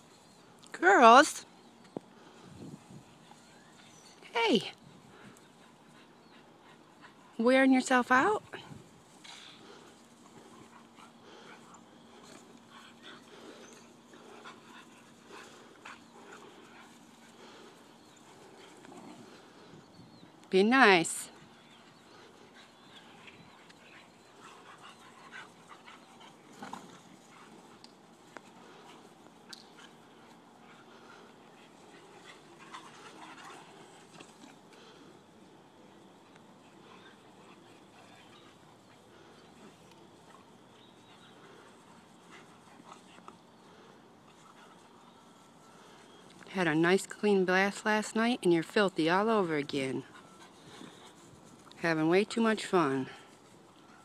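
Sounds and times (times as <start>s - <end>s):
dogs breathing and scuffling: 0.0s - 54.0s
dogs mouthing and scuffling: 21.4s - 46.5s.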